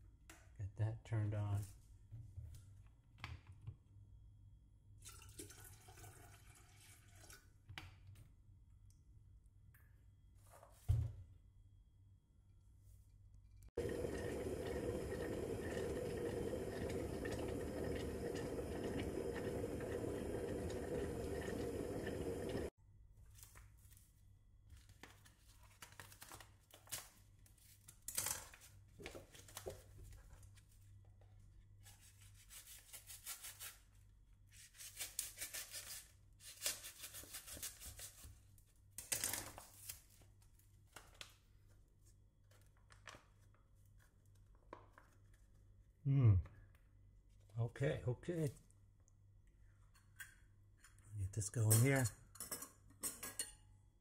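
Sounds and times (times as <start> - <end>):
electric kettle heating water: 13.8 - 22.7.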